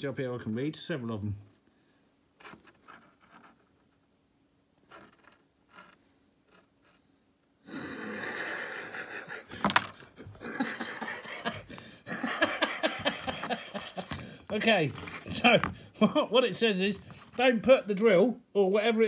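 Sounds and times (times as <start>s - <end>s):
paper rustling and crinkling: 13.8s - 15.7s.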